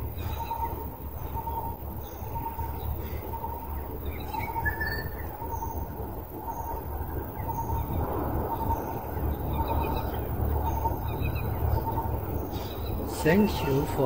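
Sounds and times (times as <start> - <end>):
low steady rumble: 0.0 - 14.0
high bird chirps: 0.2 - 5.8.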